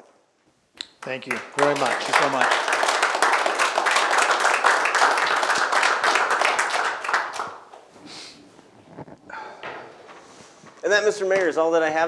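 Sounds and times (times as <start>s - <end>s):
audience applause: 1.0s - 7.7s.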